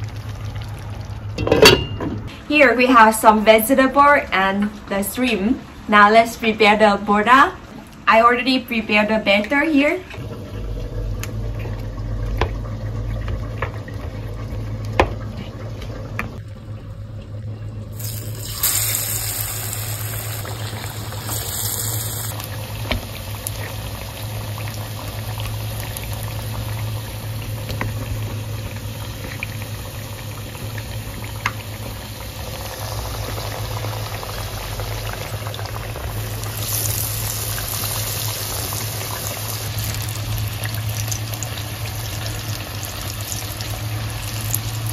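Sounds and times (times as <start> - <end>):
low hum: 10.1 - 22.6
batter sizzling in hot oil: 17.9 - 44.9.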